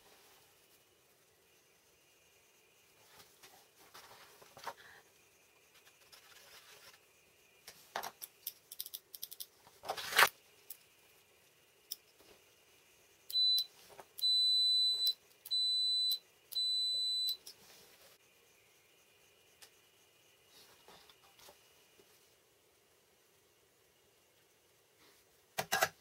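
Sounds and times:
multimeter continuity beeps: 13.3 - 17.5.

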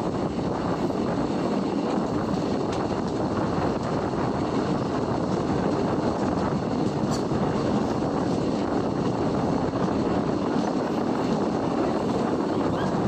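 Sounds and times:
rushing wind: 0.0 - 13.0
train wheels rolling on rails: 0.0 - 13.0.

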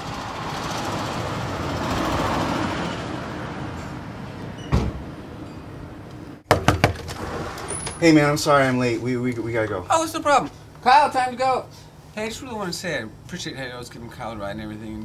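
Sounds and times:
car passing: 0.0 - 6.3
thump: 4.7 - 5.0
knocks on wooden door: 6.5 - 7.0.

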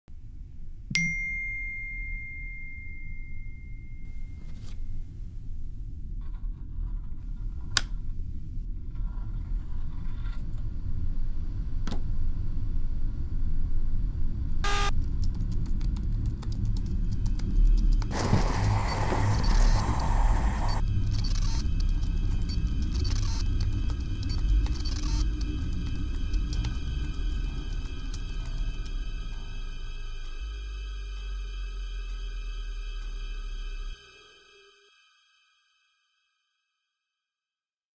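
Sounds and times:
ringing tone: 0.9 - 4.5
keyboard typing: 14.7 - 26.8
low rumbling drone: 18.1 - 34.0.

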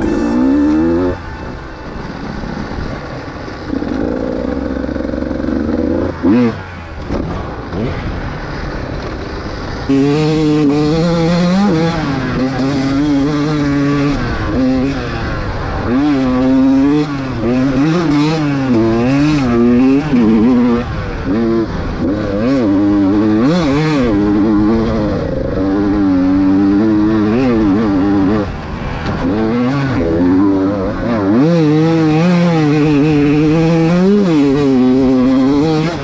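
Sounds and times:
dirt bike engine revving: 0.0 - 36.0.

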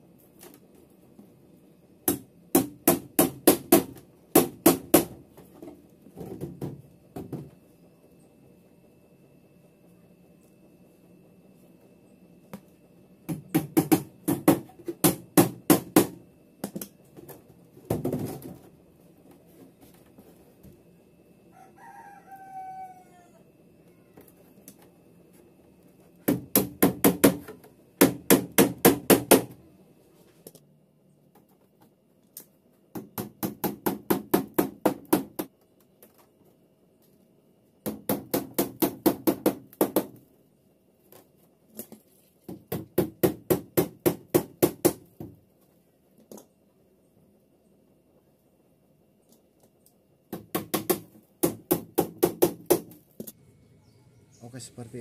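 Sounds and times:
rooster crowing: 21.4 - 24.3, 53.4 - 54.5.

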